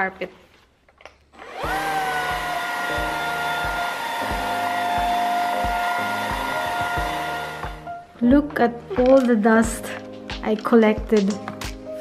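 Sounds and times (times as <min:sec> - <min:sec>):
vacuum cleaner motor whine: 0:01.4 - 0:07.8.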